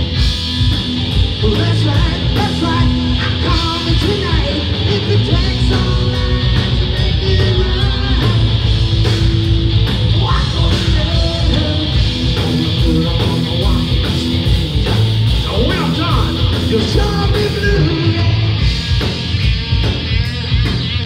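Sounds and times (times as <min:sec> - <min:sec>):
bass: 0:00.0 - 0:21.0
distorted electric guitar: 0:00.0 - 0:21.0
drums: 0:00.0 - 0:21.0
person singing: 0:01.4 - 0:08.7, 0:10.1 - 0:18.6.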